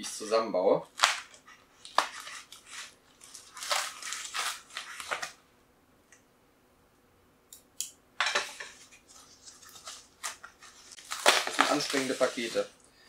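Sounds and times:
packaging rustling and crinkling: 0.9 - 5.4, 8.5 - 12.8.

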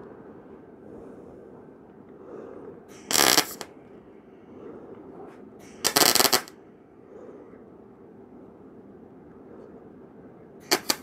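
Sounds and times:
welding arc crackling: 3.1 - 3.7, 5.8 - 6.5, 10.7 - 11.0.

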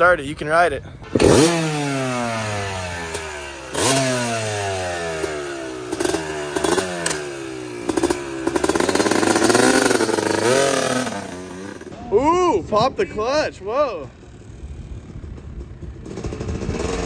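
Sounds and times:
two-stroke engine revving: 1.0 - 12.0, 14.3 - 17.0.

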